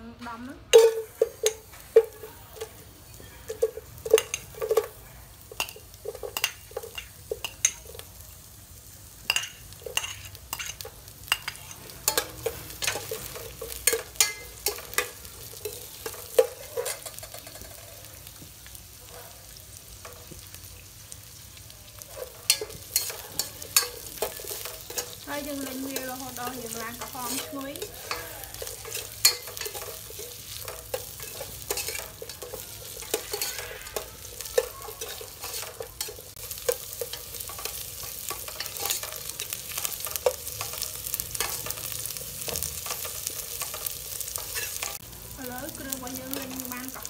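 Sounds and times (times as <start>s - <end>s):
faint frying sizzle: 0.0s - 47.0s
metal spoon scraping a pot: 9.3s - 17.9s, 22.1s - 45.0s.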